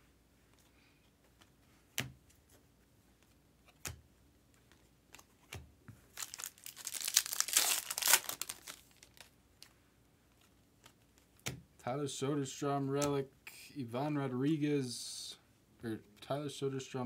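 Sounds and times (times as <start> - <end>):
foil wrapper tearing and crinkling: 6.1 - 9.3.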